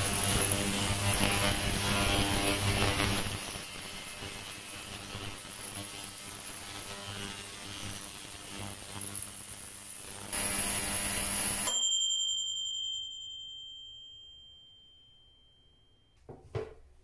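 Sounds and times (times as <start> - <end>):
ultrasonic cleaner buzzing hum: 0.0 - 12.1
timer bell ding: 11.6 - 16.2.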